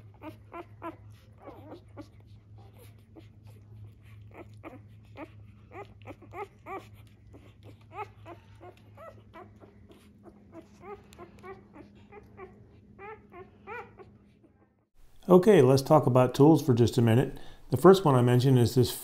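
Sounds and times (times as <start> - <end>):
puppies squeaking and whimpering: 0.0 - 14.9.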